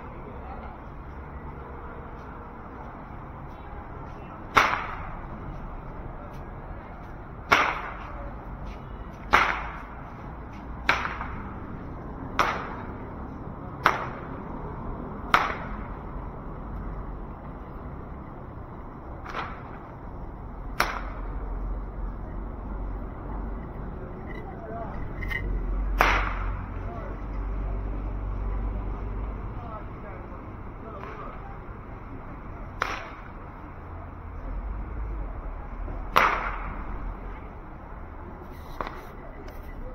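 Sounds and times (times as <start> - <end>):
sharp echoing cracks: 4.5 - 5.1, 7.4 - 8.1, 9.3 - 9.9, 10.8 - 11.4, 12.3 - 13.0, 13.8 - 14.3, 15.3 - 15.9, 19.2 - 19.8, 20.7 - 21.3, 25.9 - 26.6, 32.8 - 33.4, 36.1 - 36.8.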